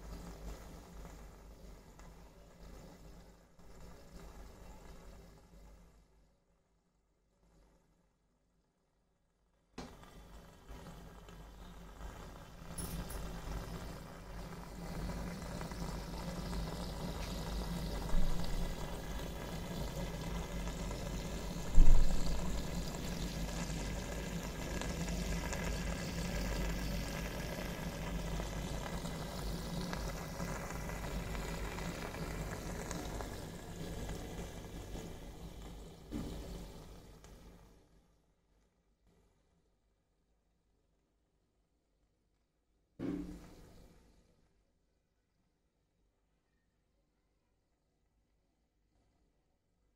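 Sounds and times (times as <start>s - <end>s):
aquarium filter bubbling: 9.8s - 37.8s.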